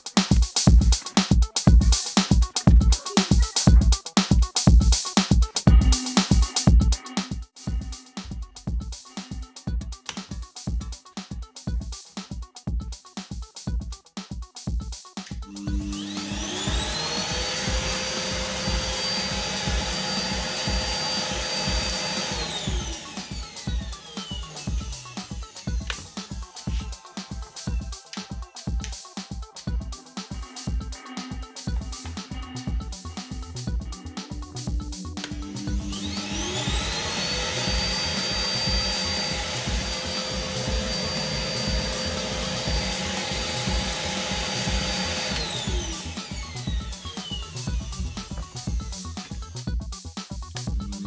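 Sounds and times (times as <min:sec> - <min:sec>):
vacuum motor whining: 0:15.5 - 0:27.0, 0:35.2 - 0:49.5.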